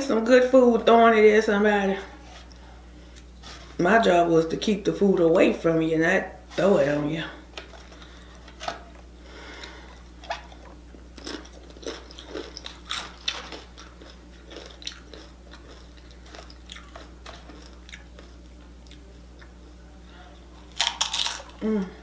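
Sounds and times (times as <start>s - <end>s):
chips crunching while chewed: 9.6s - 19.5s, 20.6s - 21.6s.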